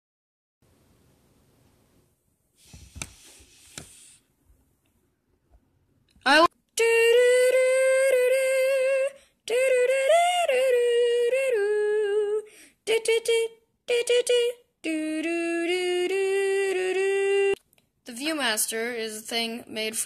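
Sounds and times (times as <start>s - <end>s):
person singing wordless tune: 6.3s - 17.6s.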